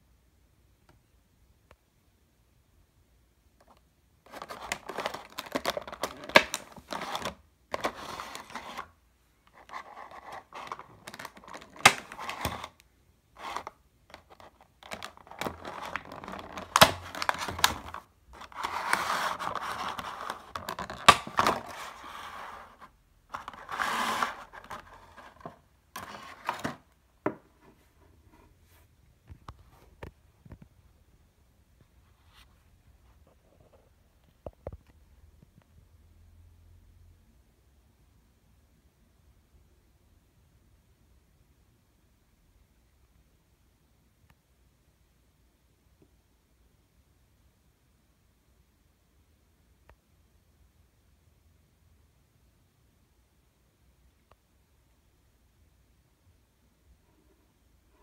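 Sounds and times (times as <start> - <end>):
plastic packaging crinkling: 4.3 - 8.9, 9.5 - 12.8, 13.4 - 26.8.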